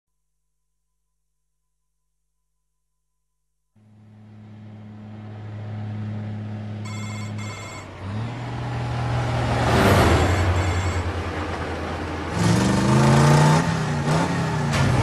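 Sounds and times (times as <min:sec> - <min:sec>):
diesel truck engine droning: 0:03.8 - 0:15.0
high electronic beeps: 0:06.8 - 0:07.9, 0:10.2 - 0:11.1.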